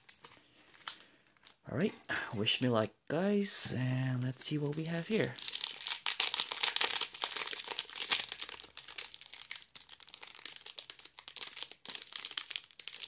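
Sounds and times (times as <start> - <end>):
foil pack crinkling: 0.0 - 1.6, 4.2 - 13.0.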